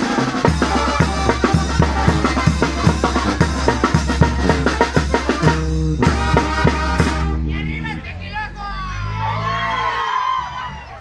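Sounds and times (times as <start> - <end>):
bass drum and snare: 0.0 - 7.5
band music: 0.0 - 11.0
held low bass: 0.4 - 11.0.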